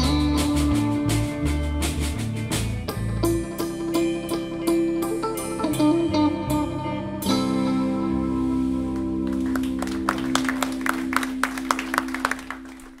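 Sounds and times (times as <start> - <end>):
guitar band chord ringing: 2.8 - 13.0
audience hand claps: 9.0 - 13.0.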